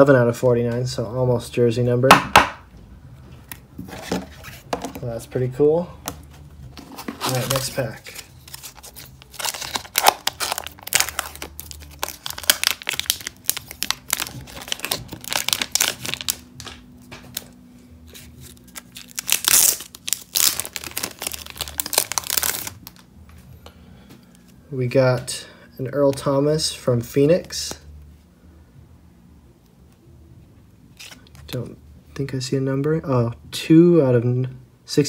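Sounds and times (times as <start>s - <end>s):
cards in plastic holders handled: 6.0s - 23.1s
card pack wrapper tearing: 7.0s - 23.0s, 31.0s - 31.5s.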